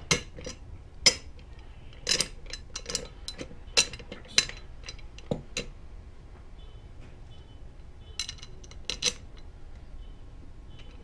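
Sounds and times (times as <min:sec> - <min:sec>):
small metal parts clicking: 0:00.0 - 0:05.8, 0:08.1 - 0:09.5.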